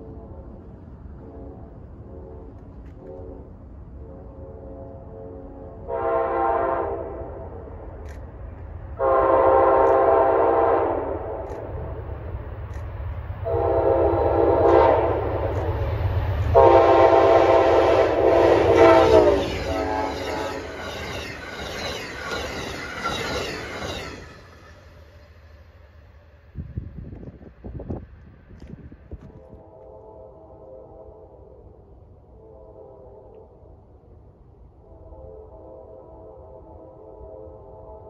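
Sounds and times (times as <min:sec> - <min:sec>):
train air horn blasts: 0:00.0 - 0:07.7, 0:09.0 - 0:11.4, 0:13.4 - 0:15.7, 0:16.5 - 0:20.8, 0:29.3 - 0:33.6, 0:34.8 - 0:38.0
train wheels rattling on rails: 0:07.5 - 0:29.6.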